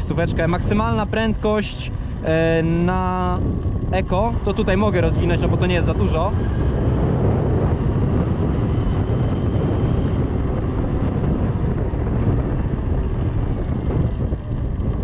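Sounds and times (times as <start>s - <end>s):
tyres humming on road: 0.0s - 15.0s
wind buffeting microphone: 0.0s - 15.0s.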